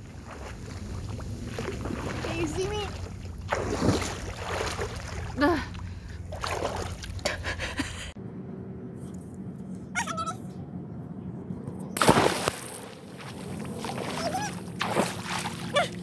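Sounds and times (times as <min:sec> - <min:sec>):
swimmer splashing into pool: 0:12.0 - 0:13.0.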